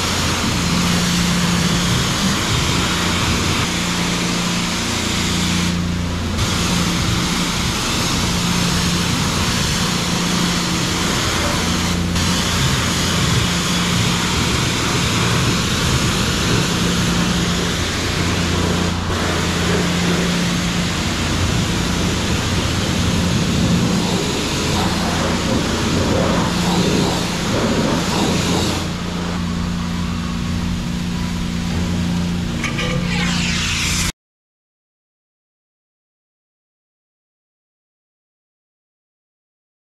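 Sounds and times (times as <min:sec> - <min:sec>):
pressure washer spray hissing: 0:00.0 - 0:30.2, 0:32.8 - 0:34.1
steady low hum: 0:00.0 - 0:34.1.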